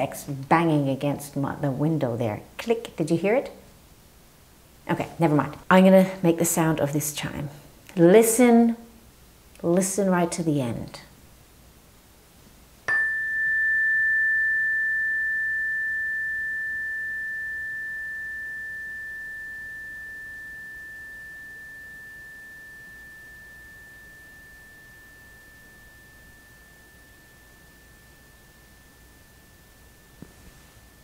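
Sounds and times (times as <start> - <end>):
hand chime ringing: 12.9 - 31.0.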